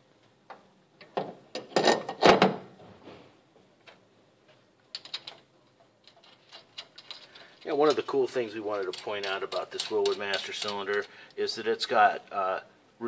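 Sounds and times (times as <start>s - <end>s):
metal clanks and clicks: 4.9s - 11.1s.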